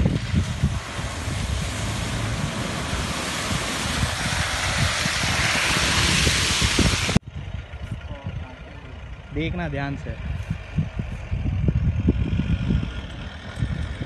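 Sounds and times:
vehicle splashing through mud: 0.0 - 7.2, 10.1 - 14.0
vehicle engine running: 0.0 - 14.0.

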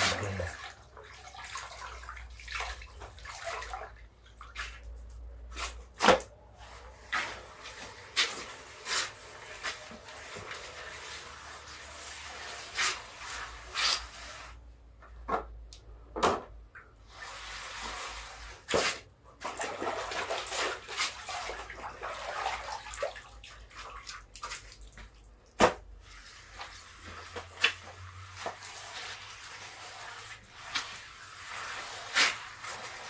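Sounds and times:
water splashing and dripping: 0.0 - 6.2, 16.8 - 33.0
wet cloth rubbing cement floor: 0.0 - 14.7, 17.1 - 24.8, 25.9 - 33.0.

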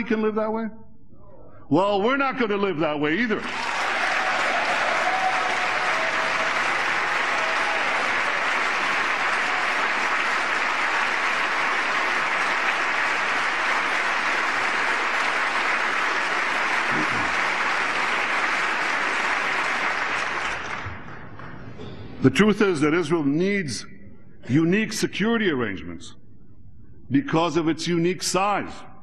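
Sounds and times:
audience applauding: 3.4 - 21.7.

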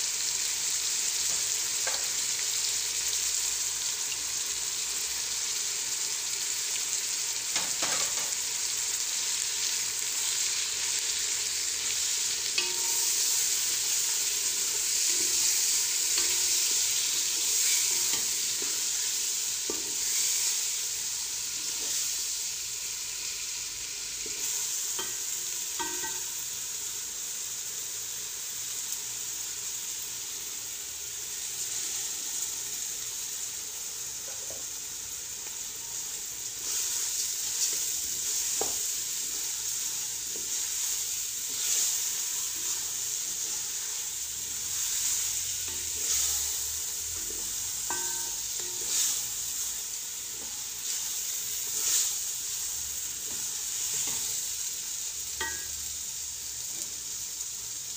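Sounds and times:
food sizzling in oil: 0.0 - 57.9
wooden spoon scraping a pot: 36.6 - 49.4.

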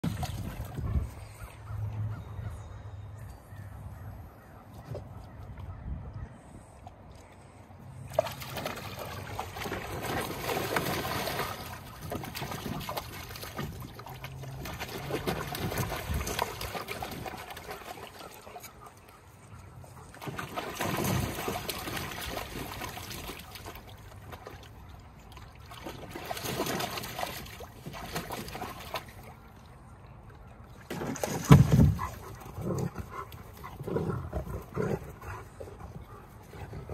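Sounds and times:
water splashing in kiddie pool: 0.0 - 0.9, 8.0 - 19.4, 20.0 - 36.9
dogs play-fighting: 32.0 - 36.9.

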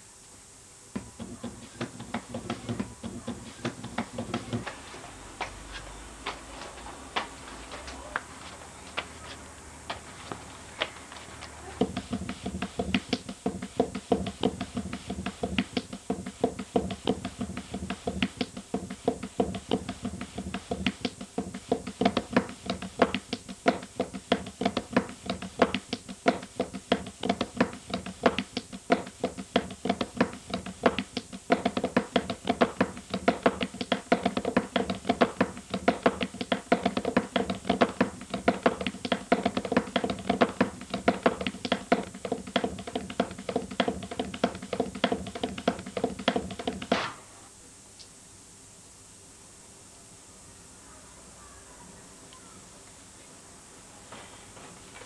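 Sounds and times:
hands slapping dough: 1.0 - 4.8, 11.8 - 47.2.

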